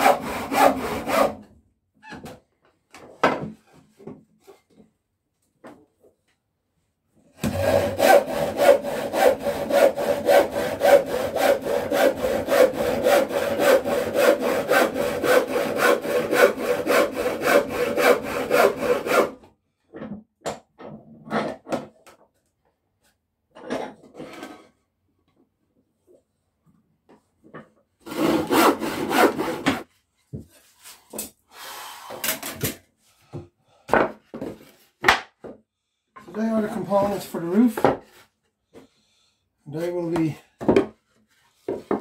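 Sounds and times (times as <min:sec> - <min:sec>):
hand saw cutting timber: 0:00.0 - 0:01.4, 0:07.4 - 0:19.4, 0:28.0 - 0:29.8.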